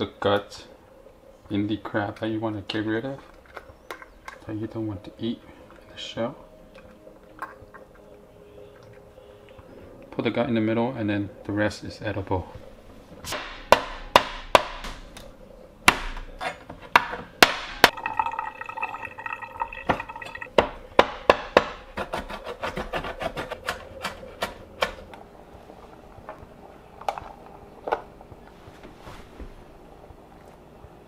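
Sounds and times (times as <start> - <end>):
knife chopping on bamboo board: 13.3 - 15.0.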